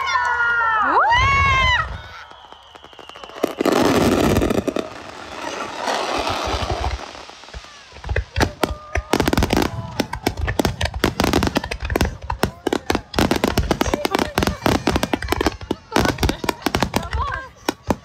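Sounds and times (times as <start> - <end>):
firework burst: 1.6 - 18.0
crackling firework pops: 2.1 - 18.0.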